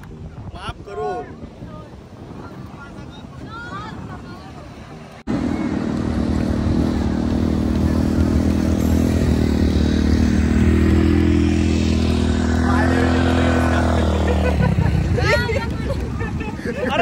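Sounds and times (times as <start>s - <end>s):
wind: 0.0s - 17.0s
small vehicle engine running: 5.3s - 15.7s.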